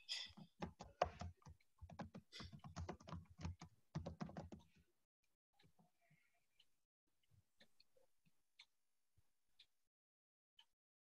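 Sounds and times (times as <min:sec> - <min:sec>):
typing on computer keyboard: 0:00.3 - 0:04.7.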